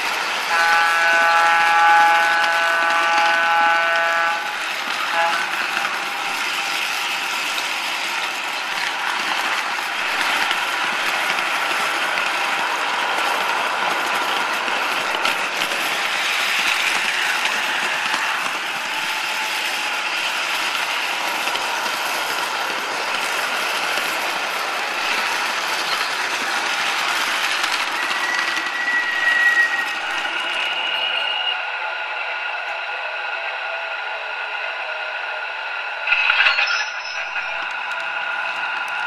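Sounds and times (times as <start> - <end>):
model train rattling on track: 0.0 - 31.2.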